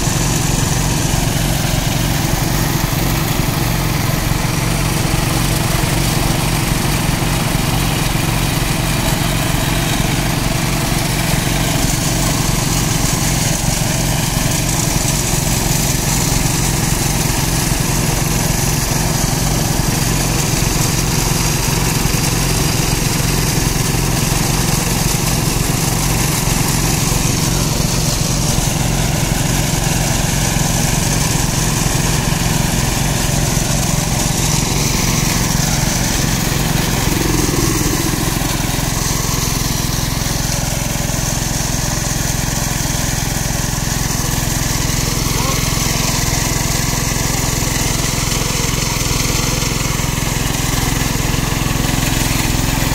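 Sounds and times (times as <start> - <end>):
small track machine engine: 0.0 - 52.9
saw engine drone: 8.9 - 52.9
abrasive saw grinding steel rail: 23.1 - 42.6.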